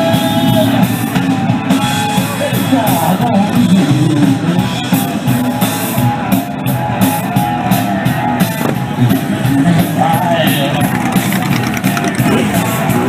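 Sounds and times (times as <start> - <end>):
rock music with drums and guitar: 0.0 - 13.0.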